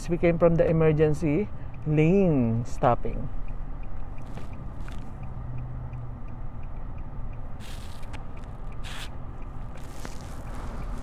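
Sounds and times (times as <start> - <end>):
road and engine rumble in car: 0.0 - 11.0
short hisses: 7.6 - 8.1, 8.8 - 9.1.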